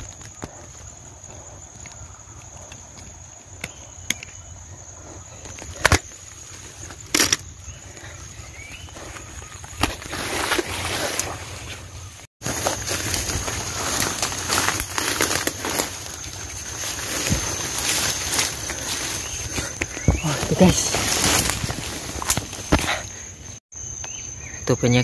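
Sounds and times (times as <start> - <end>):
footsteps through undergrowth: 5.0 - 23.6
leaves and stems brushing: 9.0 - 23.2
twigs snapping: 12.4 - 23.1.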